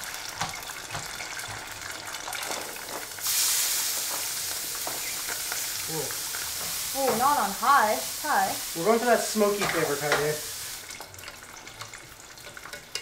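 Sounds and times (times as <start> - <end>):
chicken deep-frying in oil: 0.0 - 13.0
food sizzling in skillet: 0.0 - 13.0.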